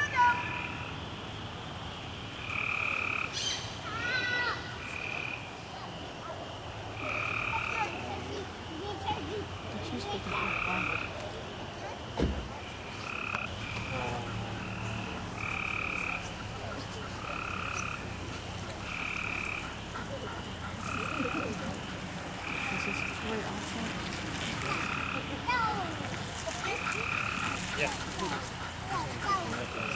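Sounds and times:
sharp thump: 12.2 - 12.6.

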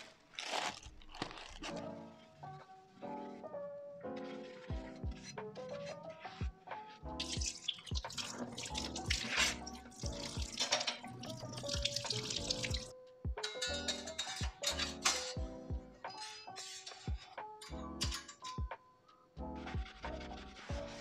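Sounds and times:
background music with steady beat: 1.8 - 21.0
knife rinsed under water: 7.2 - 12.9.

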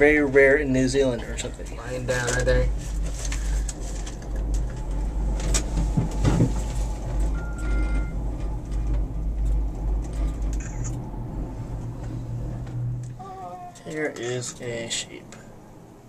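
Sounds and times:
gondola cabin rumble: 0.0 - 15.0.

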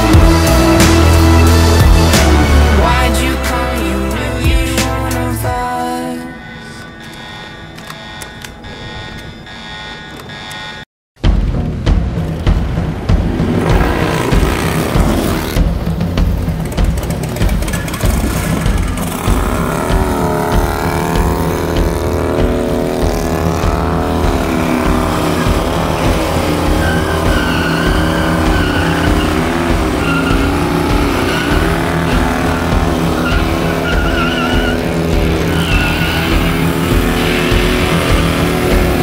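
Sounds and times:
motorcycle engine revving: 0.0 - 5.4, 11.2 - 39.0
tyre squealing: 16.6 - 39.0.

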